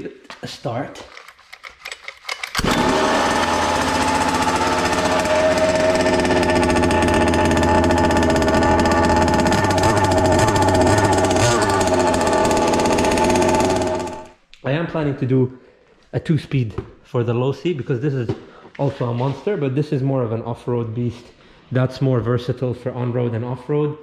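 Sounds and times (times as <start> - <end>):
pull-start cord: 1.1 - 14.4
two-stroke engine running: 2.6 - 14.4.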